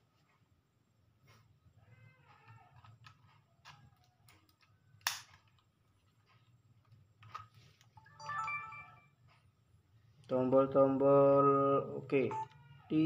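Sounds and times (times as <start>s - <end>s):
sharp plastic snap: 5.0s - 5.4s.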